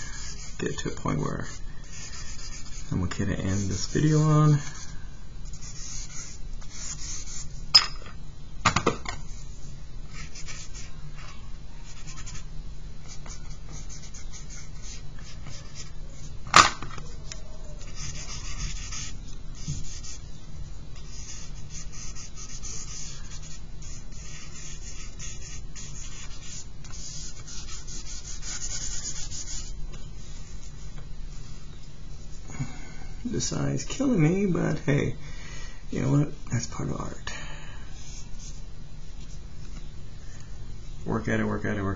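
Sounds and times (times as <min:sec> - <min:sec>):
charcoal scratching on paper: 0:05.5 - 0:07.5, 0:17.8 - 0:20.2, 0:21.0 - 0:29.7.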